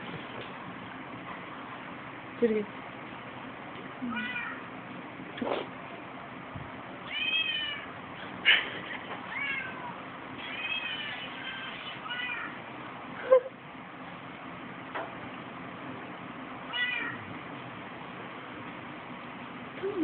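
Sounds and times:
cat meowing: 4.0 - 4.6, 7.0 - 7.9, 9.3 - 12.6, 16.7 - 17.2.

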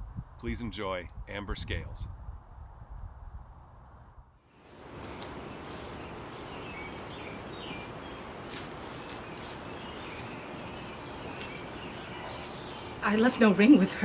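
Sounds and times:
outdoor background hiss: 4.4 - 14.0
bird chirps: 4.5 - 14.0.

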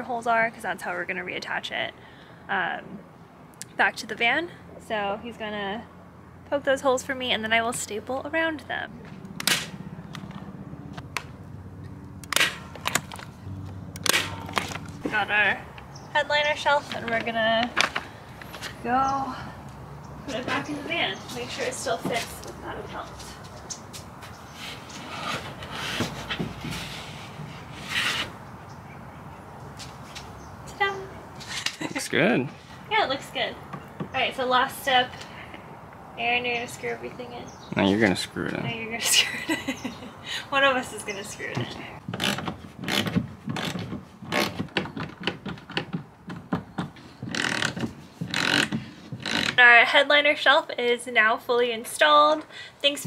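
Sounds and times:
shelf scraping against ceiling: 24.5 - 28.4.

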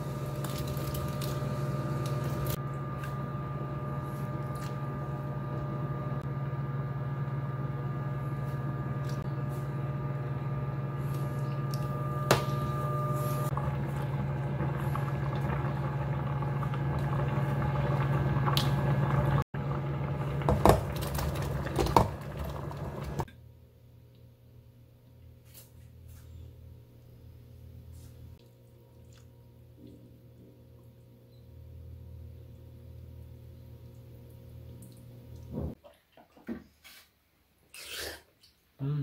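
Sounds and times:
broth boiling in pot: 0.0 - 23.3, 28.5 - 35.8
kitchen appliance hum: 0.0 - 35.8.

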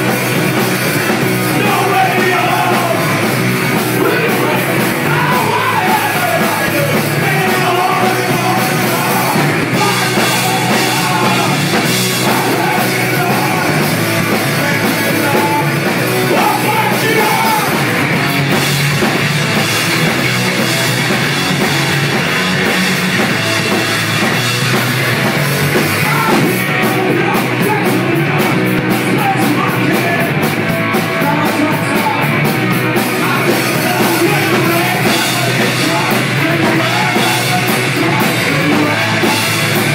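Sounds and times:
drum strokes: 0.0 - 27.8
live punk rock band: 0.0 - 39.9.

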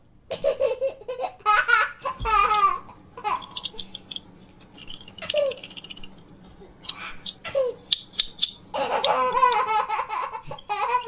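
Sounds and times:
toy handcuff ratchet clicks: 3.3 - 6.2, 6.9 - 9.7
person laughing and babbling: 8.8 - 11.0.

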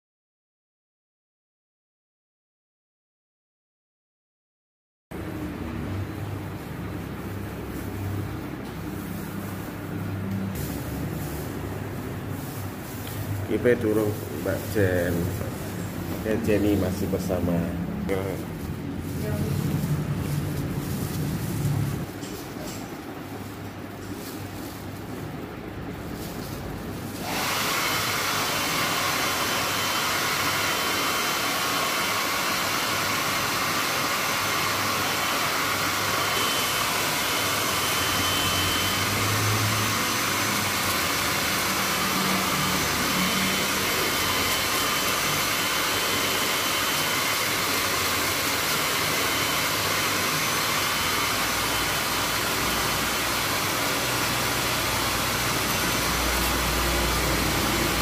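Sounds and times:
hair dryer blowing air: 6.6 - 22.7, 26.1 - 58.0.

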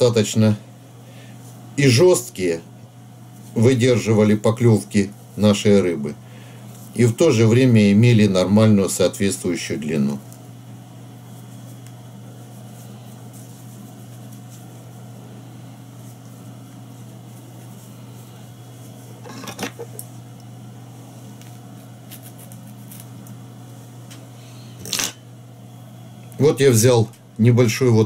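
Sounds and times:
low electrical hum: 0.0 - 28.0
rustling handling noise: 3.0 - 8.4, 9.4 - 25.1.

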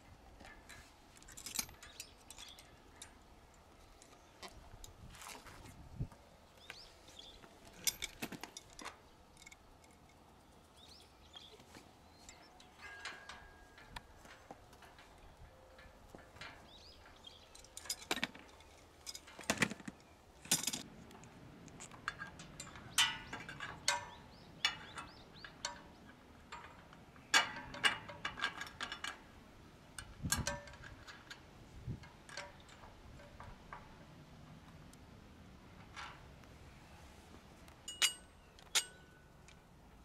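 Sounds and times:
metal parts clinking: 0.4 - 3.2, 7.2 - 10.2, 12.2 - 20.9, 37.8 - 39.6.

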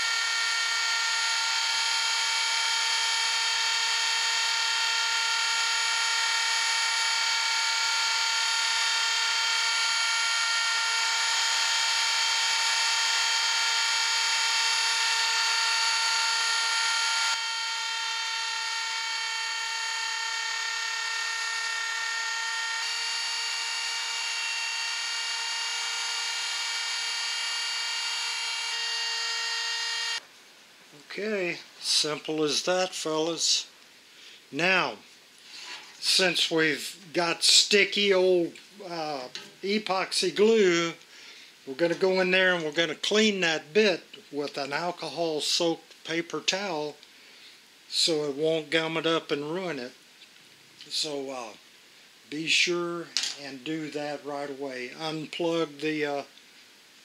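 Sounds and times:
electric router whine: 0.0 - 30.2.

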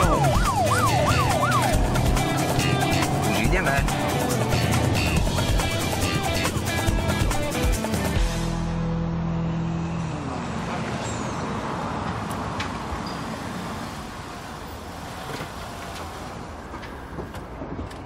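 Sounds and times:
music tones gliding down: 0.0 - 9.6
car engine and tyre noise: 0.0 - 18.0.

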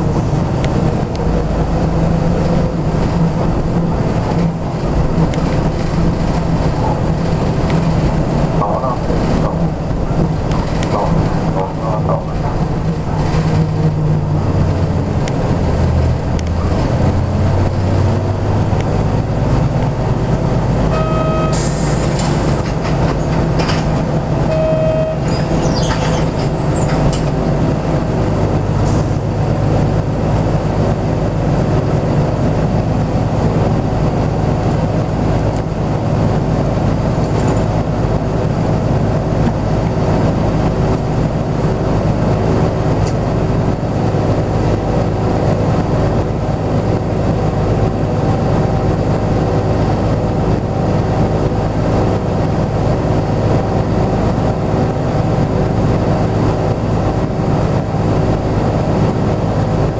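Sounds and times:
bus diesel engine idling: 0.0 - 59.9
short beeps: 20.9 - 21.7, 24.4 - 25.4.

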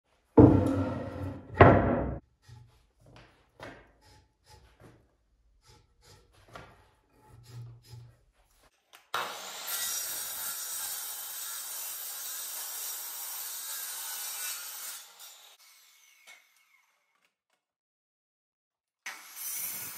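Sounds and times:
wooden plank knocking on workbench: 0.4 - 2.2
miter saw cutting wood: 9.1 - 17.1.

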